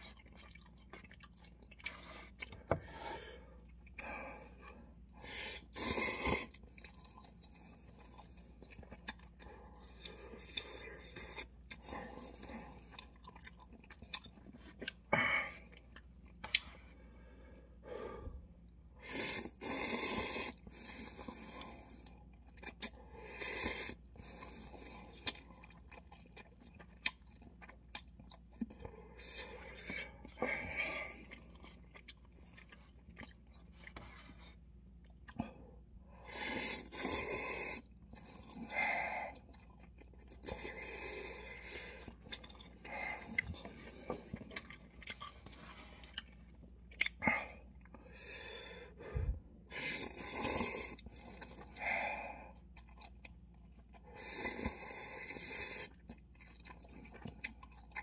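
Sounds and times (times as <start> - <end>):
chewing and mouth sounds: 0.0 - 17.0, 18.6 - 48.4, 49.1 - 58.0
noodles being slurped: 49.6 - 51.8, 52.6 - 58.0.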